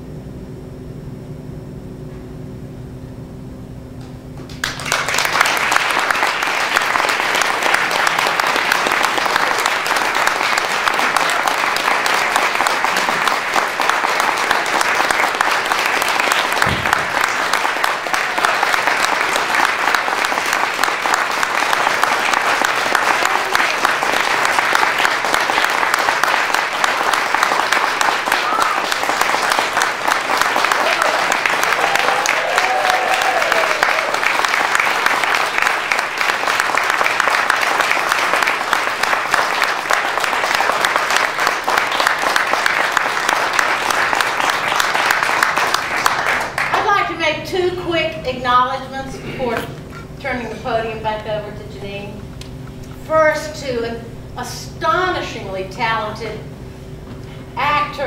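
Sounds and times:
audience applause: 0:04.4 - 0:47.0.

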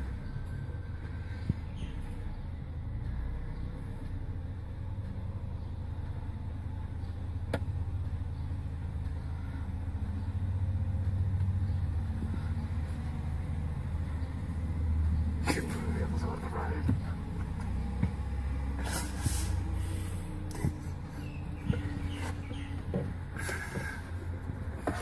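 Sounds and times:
vehicle engines rumbling: 0:00.0 - 0:25.0.

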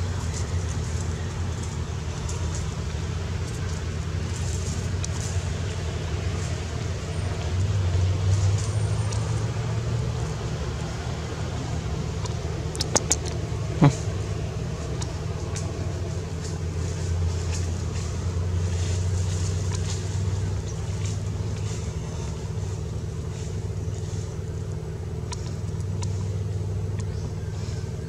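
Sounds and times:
low steady hum: 0:00.0 - 0:28.0
faint clicks: 0:12.1 - 0:14.0, 0:19.0 - 0:28.0.

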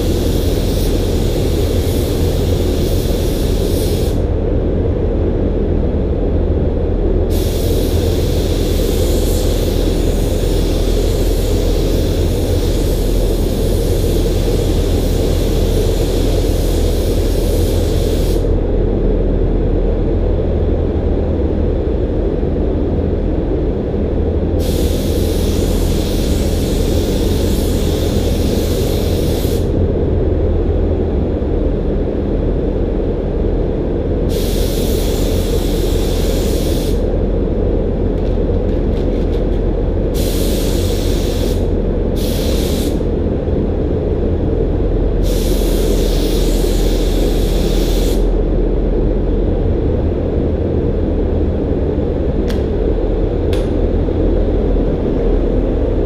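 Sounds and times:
spray gun hissing: 0:00.0 - 0:04.2, 0:07.3 - 0:18.5, 0:24.6 - 0:29.7, 0:34.3 - 0:37.0, 0:40.2 - 0:43.0, 0:45.2 - 0:48.3
low machine rumble: 0:00.0 - 0:34.3, 0:37.0 - 0:42.2, 0:43.0 - 0:46.1, 0:48.2 - 0:56.0.

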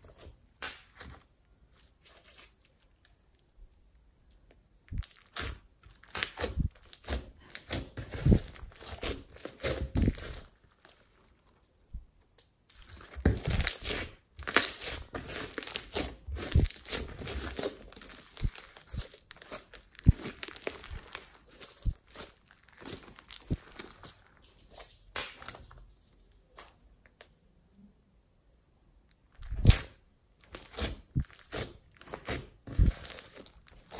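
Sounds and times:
slime crackling and popping: 0:04.9 - 0:11.7, 0:12.7 - 0:24.4, 0:29.3 - 0:33.9.

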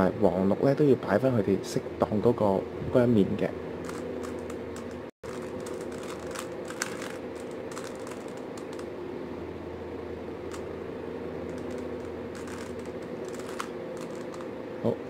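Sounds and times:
steady hum: 0:00.0 - 0:15.0
puzzle cube layers clicking: 0:03.9 - 0:08.9, 0:11.5 - 0:14.5.

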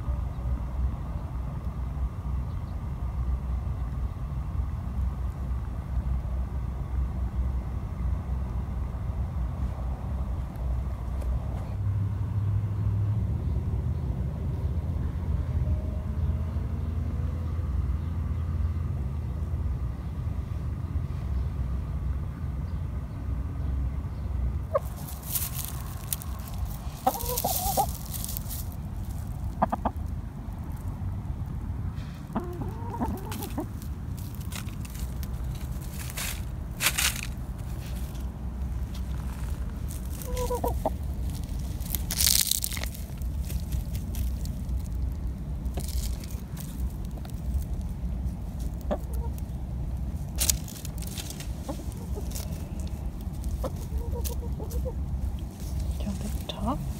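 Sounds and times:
hens clucking: 0:24.6 - 0:30.9, 0:32.0 - 0:56.9
rustling in dry leaves: 0:24.7 - 0:56.9.

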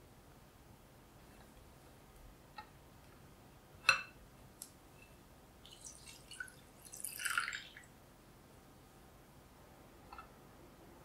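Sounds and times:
milk pouring into chocolate: 0:05.6 - 0:07.9.

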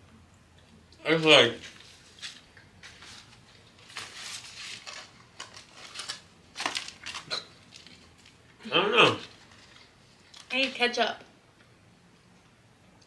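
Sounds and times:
paper bag and wrappers rustling: 0:01.2 - 0:08.4, 0:09.0 - 0:10.8.

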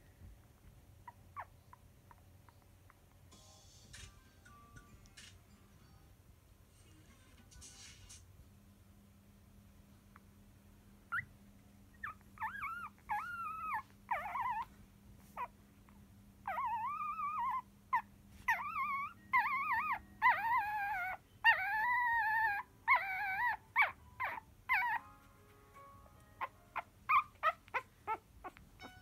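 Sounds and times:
puppies whimpering: 0:12.0 - 0:14.7, 0:16.5 - 0:25.0, 0:26.4 - 0:29.0.

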